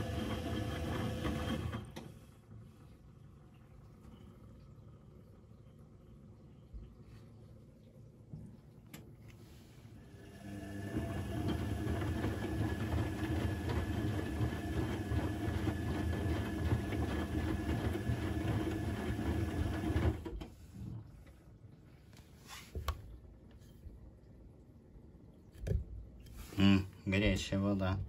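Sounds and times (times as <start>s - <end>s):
washing machine drum clattering: 10.8s - 20.3s.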